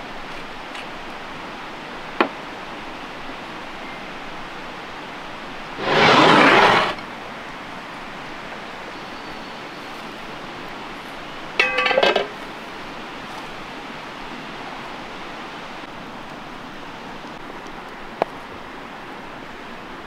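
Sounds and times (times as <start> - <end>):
steady outdoor hiss: 0.0 - 20.0
burst of rushing noise: 5.8 - 7.0
metal lid clanking: 11.6 - 12.4.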